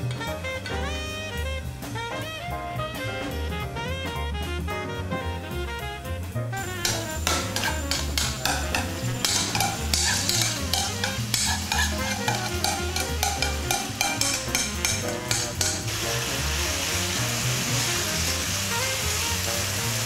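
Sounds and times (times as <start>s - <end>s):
background music with bass: 0.0s - 20.0s
meat sizzling in oil: 6.6s - 20.0s
utensil scraping and clinking: 6.7s - 15.9s.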